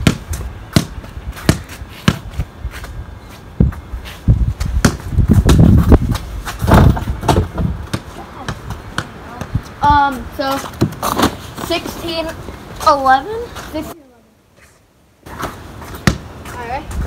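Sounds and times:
basketball bouncing on hard ground: 0:00.0 - 0:11.7, 0:15.3 - 0:17.0.

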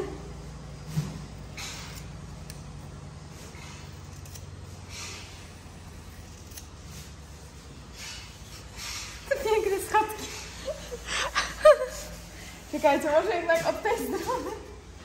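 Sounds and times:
scissors snipping hair: 0:03.9 - 0:04.5, 0:06.3 - 0:06.8.

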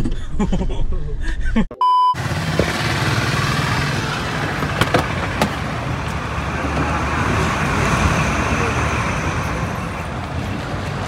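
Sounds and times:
car engine hum: 0:02.2 - 0:11.0.

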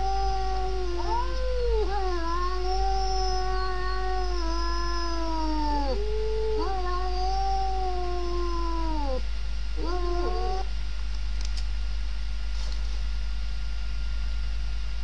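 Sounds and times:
cat yowling: 0:00.0 - 0:09.2, 0:09.8 - 0:10.7.

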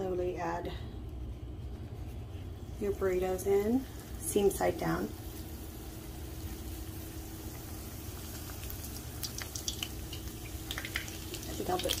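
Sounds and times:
oil sizzling in a pan: 0:03.8 - 0:12.0.

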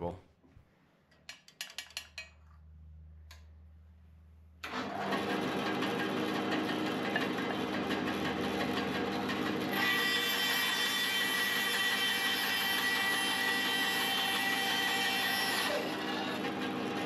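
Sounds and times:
bandsaw blade whining through wood: 0:04.6 - 0:17.0
bandsaw running: 0:04.6 - 0:17.0.

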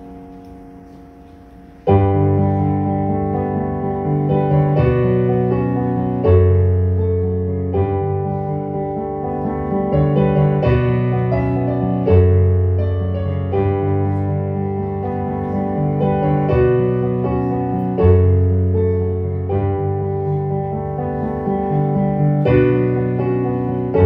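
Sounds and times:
solo piano chords: 0:00.0 - 0:24.0.

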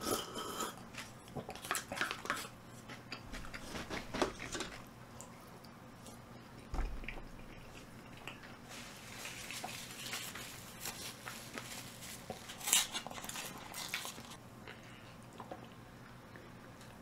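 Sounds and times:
paper carton crinkling: 0:08.7 - 0:14.4.

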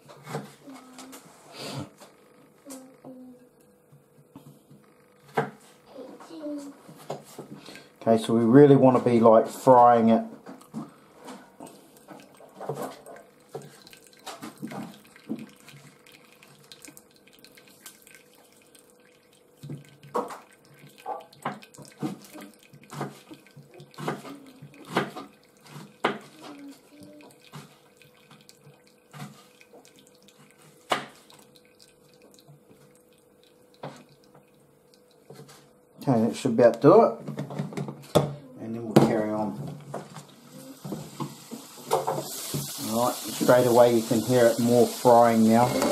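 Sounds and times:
liquid poured from frying pan: 0:11.6 - 0:35.6, 0:39.9 - 0:45.9.

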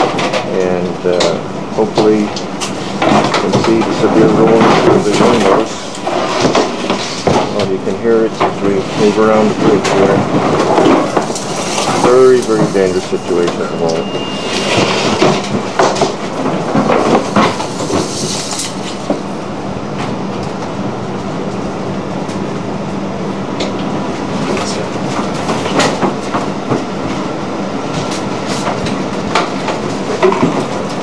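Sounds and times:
rattling and clattering: 0:00.0 - 0:13.2, 0:14.6 - 0:19.3
low machinery hum: 0:00.0 - 0:31.0.

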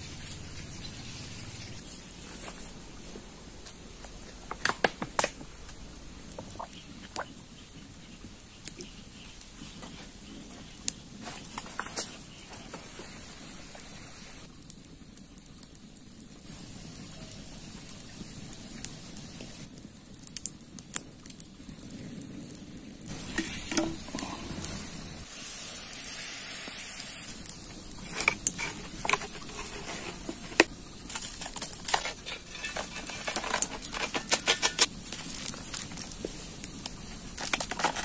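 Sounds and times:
campfire burning: 0:00.0 - 0:38.0
water hissing on hot charcoal: 0:00.0 - 0:38.0
sharp clicks and crackles: 0:18.0 - 0:25.2, 0:27.3 - 0:38.0.

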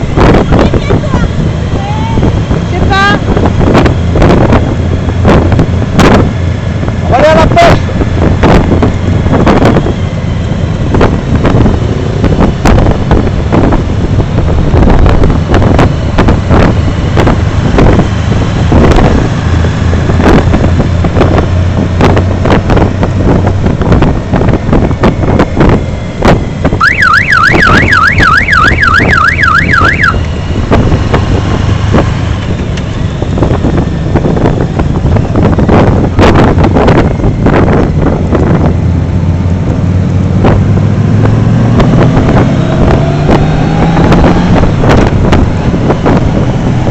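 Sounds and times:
motorcycle engine running: 0:00.0 - 0:46.9
wind gusting over microphone: 0:00.0 - 0:46.9
warbling electronic siren tone: 0:26.8 - 0:30.3.

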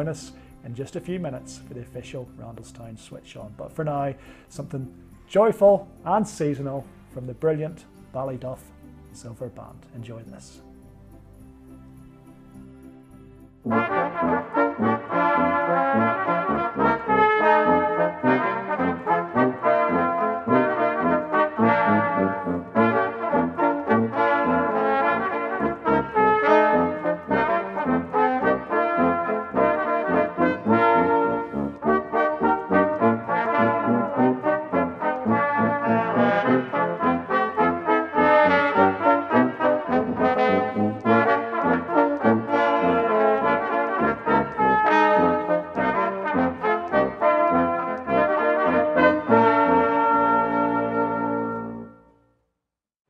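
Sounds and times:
brass band playing: 0:13.6 - 0:52.1.

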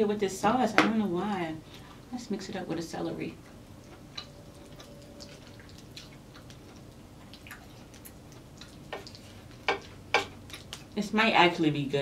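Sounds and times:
wet clicks and squelches: 0:04.2 - 0:09.2.

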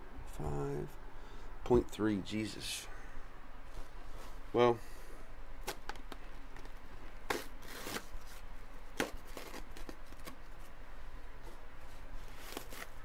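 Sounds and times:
rustling: 0:05.6 - 0:13.0.

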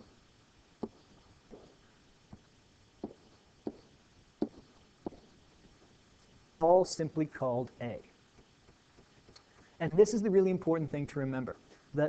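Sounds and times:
stylus tapping on screen: 0:03.0 - 0:03.8.

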